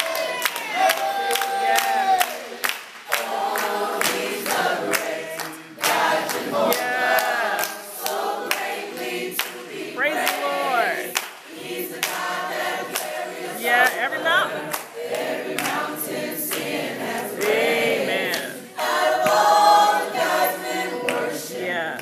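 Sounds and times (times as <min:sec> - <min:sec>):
hand claps: 0:00.0 - 0:10.4, 0:11.1 - 0:12.3, 0:12.9 - 0:13.2, 0:14.7 - 0:15.9, 0:19.1 - 0:19.5, 0:21.1 - 0:21.3
group singing in harmony: 0:00.0 - 0:22.0.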